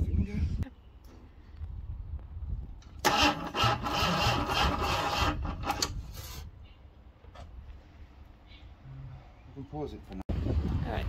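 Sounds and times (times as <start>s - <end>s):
starter motor grinding: 3.0s - 6.0s.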